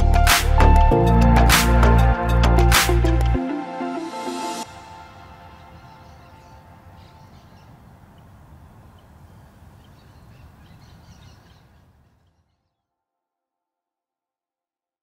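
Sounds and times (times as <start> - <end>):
bird chirps: 5.4 - 12.8.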